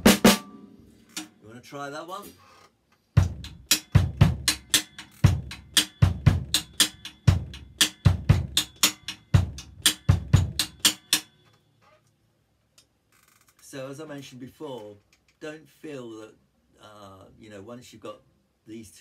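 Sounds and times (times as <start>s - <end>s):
snare drum strokes: 3.2s - 11.3s.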